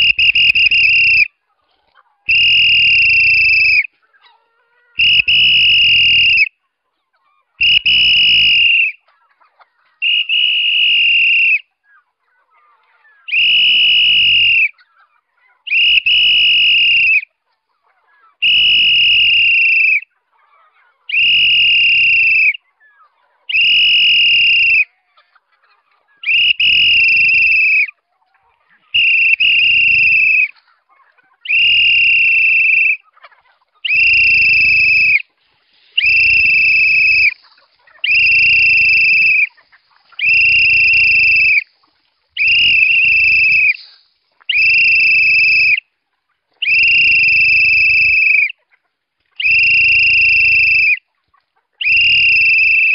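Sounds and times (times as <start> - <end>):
whistle blasts: 0.0 - 1.3, 2.3 - 3.9, 5.0 - 6.5, 7.6 - 9.0, 10.0 - 11.7, 13.3 - 14.8, 15.7 - 17.3, 18.4 - 20.1, 21.1 - 22.6, 23.5 - 24.9, 26.2 - 27.9, 28.9 - 30.5, 31.5 - 33.0, 33.8 - 35.3, 36.0 - 37.4, 38.0 - 39.6, 40.2 - 41.7, 42.4 - 45.8, 46.6 - 48.6, 49.4 - 51.0, 51.8 - 52.9.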